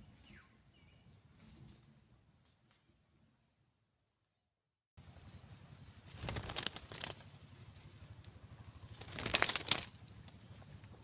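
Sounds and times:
parrots flapping wings: 6.1s - 7.3s, 8.9s - 10.0s.

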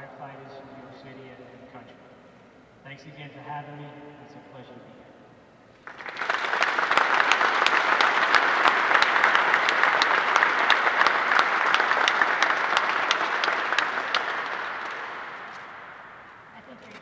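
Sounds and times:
audience applauding: 5.8s - 16.5s
sharp close claps: 5.8s - 17.0s.

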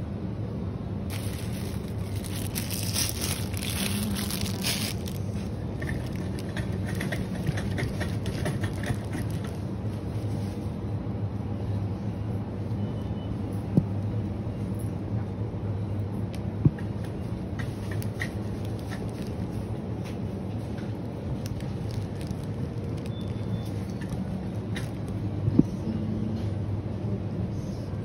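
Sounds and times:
refrigerated display cases humming: 0.0s - 28.0s
rustling handling noise: 1.1s - 10.8s, 17.2s - 25.3s.

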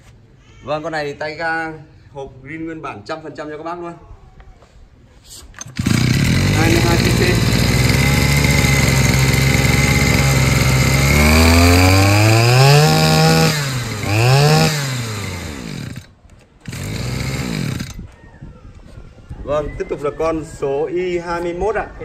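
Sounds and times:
brush cutter engine revving: 5.6s - 18.1s.

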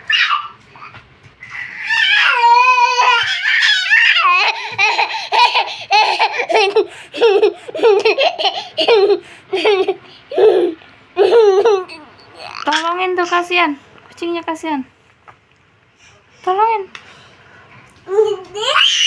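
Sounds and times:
toddler laughing: 1.5s - 12.9s.

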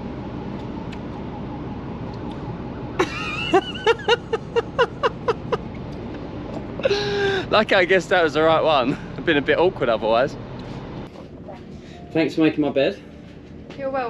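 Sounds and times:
low background hum: 0.0s - 14.0s
woman laughing: 3.0s - 5.7s, 6.6s - 7.5s.

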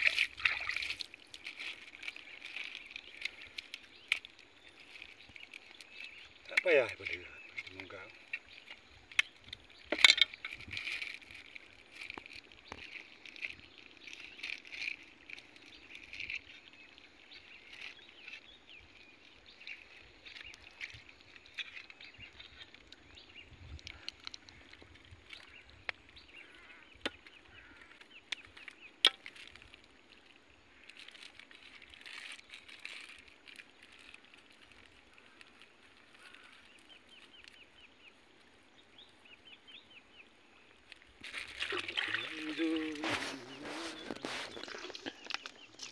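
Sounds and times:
plastic bag rustling: 41.2s - 45.9s.

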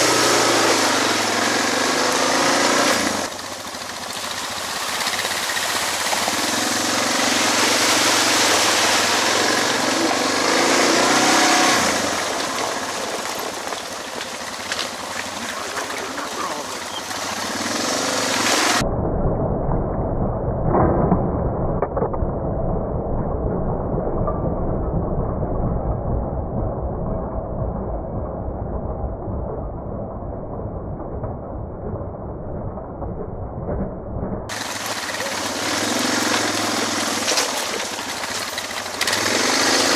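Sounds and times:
motorcycle engine running: 0.0s - 18.8s, 23.7s - 39.9s
broad rushing noise: 4.2s - 18.8s.

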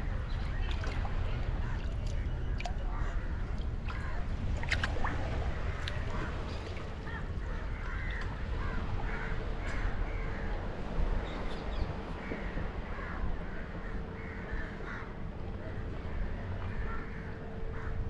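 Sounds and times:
steady low rumble: 0.0s - 18.0s
crows cawing: 7.0s - 10.4s, 12.9s - 15.2s, 16.7s - 18.0s.

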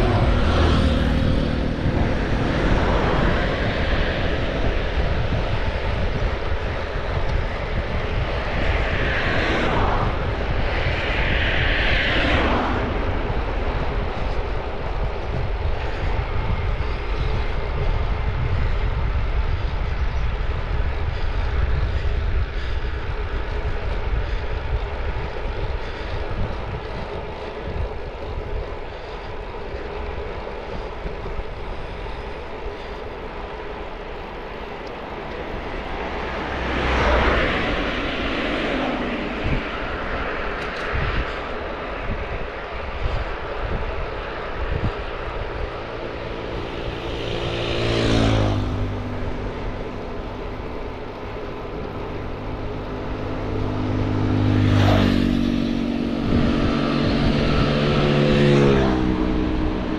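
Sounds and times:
rushing sweeps dropping in pitch: 0.0s - 5.3s, 8.2s - 14.2s, 34.4s - 41.0s, 45.3s - 59.9s
bike tyre noise on road: 0.0s - 59.9s
wind rushing over microphone: 0.0s - 59.9s.

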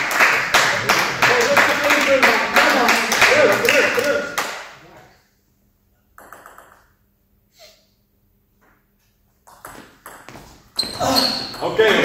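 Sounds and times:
table tennis ball clicks: 6.2s - 6.9s.

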